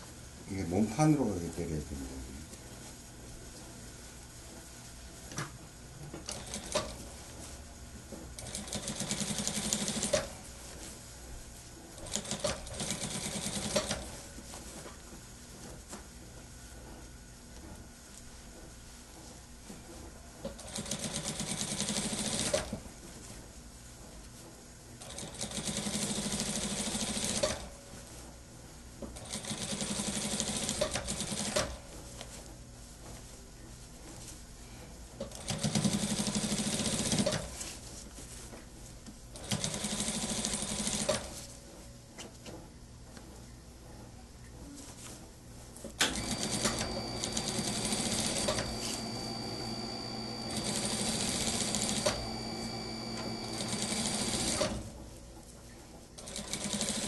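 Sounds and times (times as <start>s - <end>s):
sewing machine stitching: 8.4s - 10.3s, 46.0s - 54.9s, 56.2s - 57.0s.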